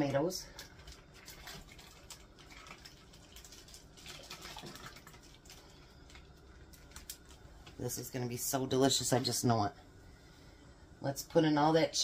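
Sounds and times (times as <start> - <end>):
liquid dripping into pot: 0.6 - 7.8.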